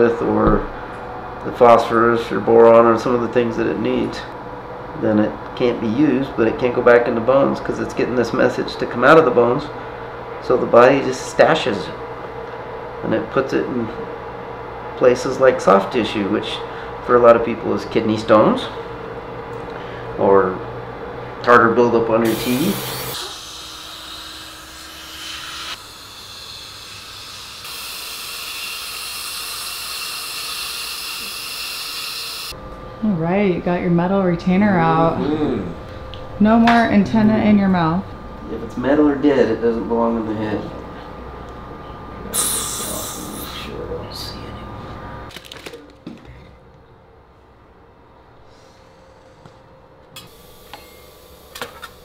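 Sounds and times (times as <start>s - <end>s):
steady low hum: 0.0s - 31.5s, 32.4s - 52.0s
dental drill hissing: 22.2s - 32.6s, 42.4s - 43.6s, 50.2s - 52.0s.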